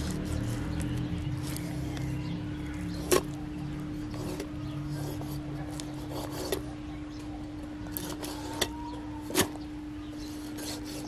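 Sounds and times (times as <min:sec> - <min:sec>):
knife scraping through fish: 0:04.0 - 0:06.7, 0:07.9 - 0:09.6, 0:10.2 - 0:11.0.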